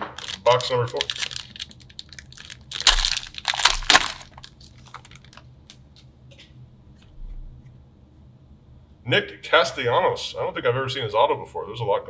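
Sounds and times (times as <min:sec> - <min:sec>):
foil wrapper crinkling: 0:00.0 - 0:05.9.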